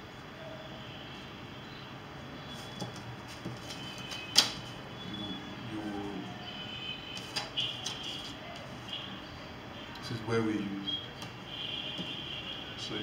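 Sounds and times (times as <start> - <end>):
paper rustling: 2.6 - 4.8, 7.2 - 8.9.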